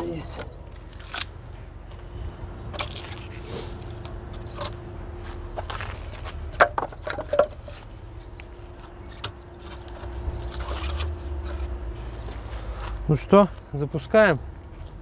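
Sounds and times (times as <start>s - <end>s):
wood knocking and scraping in clay oven: 4.0s - 13.0s.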